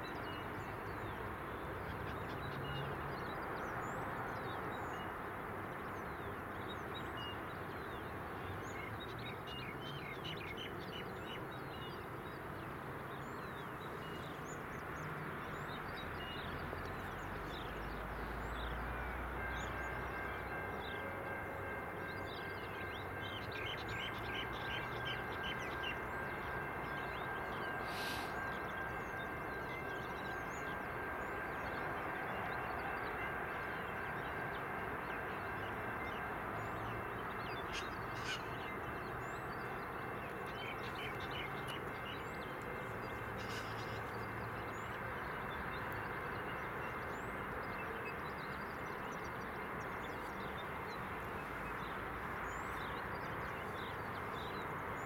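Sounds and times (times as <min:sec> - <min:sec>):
distant diesel trains idling: 0:11.4 - 0:55.0.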